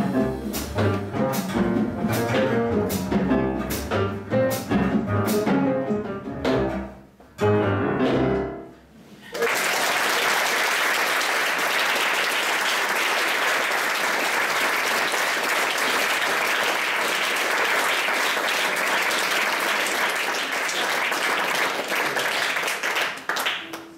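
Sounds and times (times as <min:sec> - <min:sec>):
audience applauding: 0:09.3 - 0:23.9.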